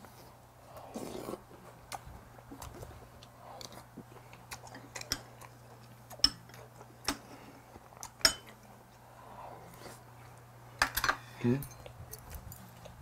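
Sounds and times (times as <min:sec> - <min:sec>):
metal spoon clinking on ceramic bowl: 0:08.2 - 0:08.5.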